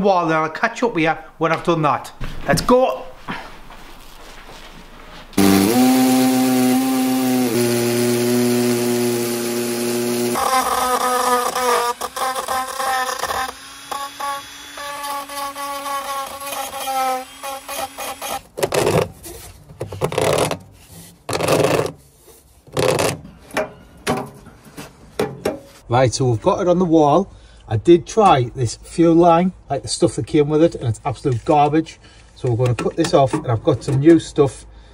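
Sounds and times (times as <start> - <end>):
electric drill drilling into brick: 5.4 - 18.5
knocks and scrapes: 18.6 - 25.9.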